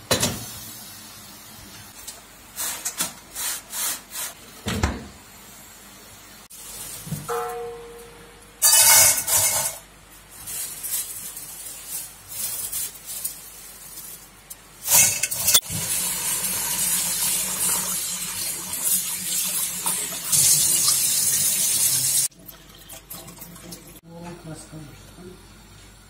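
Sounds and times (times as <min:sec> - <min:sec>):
dry noodles rustling: 0:10.2 - 0:14.5.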